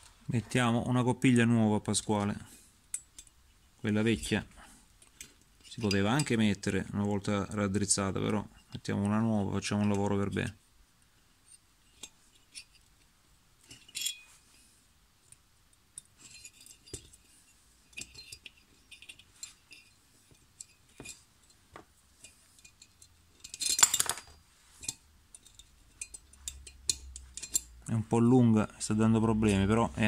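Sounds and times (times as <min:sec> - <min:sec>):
small metal clicks and clinks: 0:16.0 - 0:21.6, 0:22.2 - 0:27.8.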